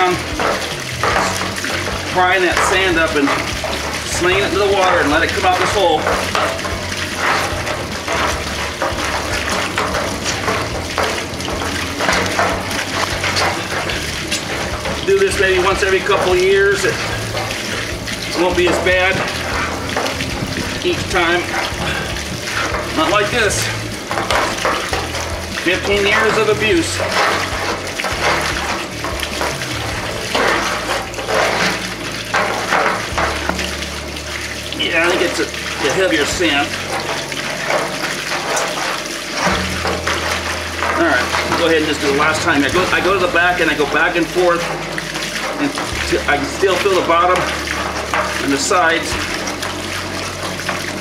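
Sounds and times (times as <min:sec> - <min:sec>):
water gushing onto concrete: 0:00.0 - 0:51.0
well pump running: 0:00.0 - 0:51.0.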